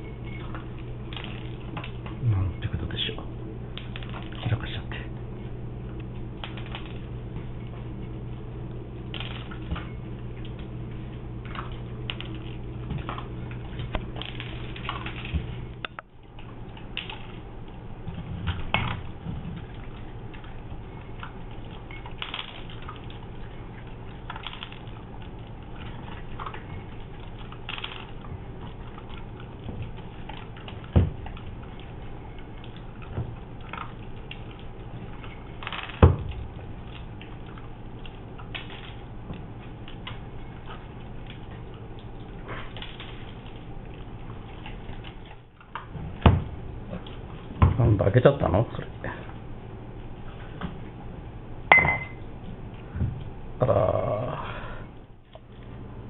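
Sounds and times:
dogs crunching kibble: 0.0s - 46.0s
steady low hum: 0.0s - 56.0s
knocks against bowls: 51.7s - 52.2s.

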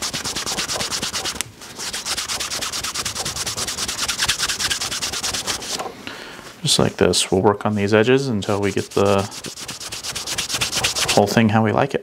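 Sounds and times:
cloth rubbing leather edge: 0.0s - 5.9s, 8.4s - 11.3s.

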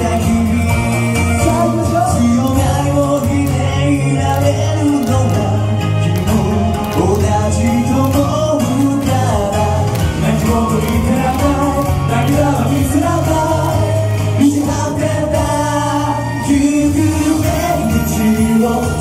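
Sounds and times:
backing music: 0.0s - 19.0s
male group singing: 0.0s - 19.0s.

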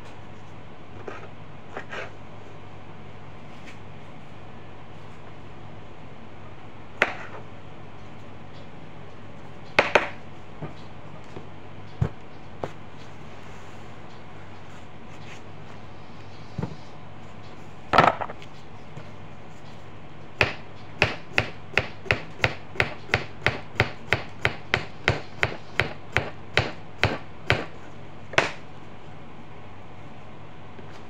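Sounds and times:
knife chopping on cutting board: 20.4s - 27.8s.

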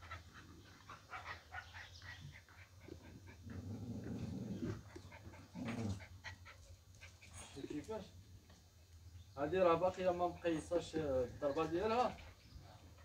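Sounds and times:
dog growling: 0.0s - 6.6s.

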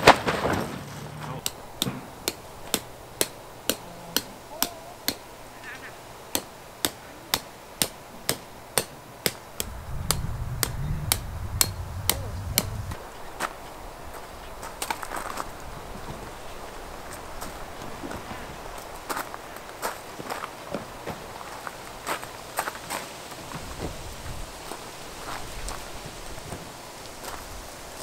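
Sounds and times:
sharp knocks: 0.0s - 5.2s, 6.3s - 13.0s
low rumble: 9.6s - 13.1s.

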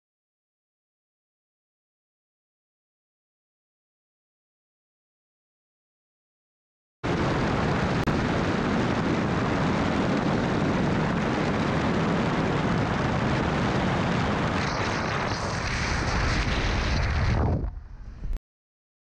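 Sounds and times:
road and wind noise: 7.1s - 18.4s.

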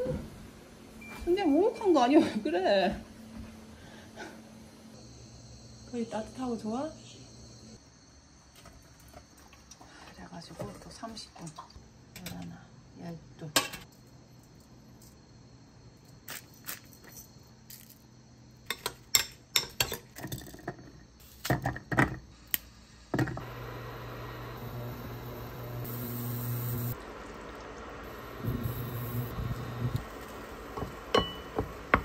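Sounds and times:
kitchen appliance humming: 23.2s - 32.0s
dishes and utensils clinking: 30.8s - 31.7s.

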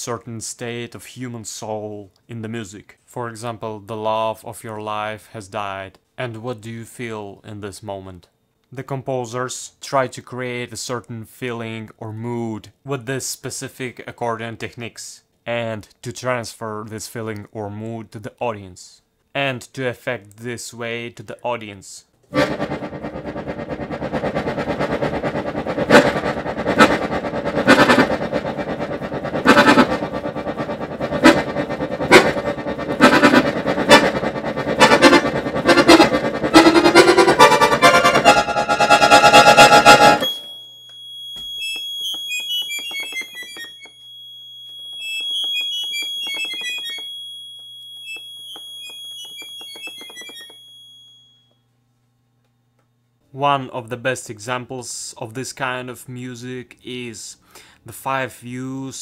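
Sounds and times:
accordion playing chords: 22.3s - 40.5s
accordion high notes: 22.3s - 40.6s, 41.4s - 43.9s.

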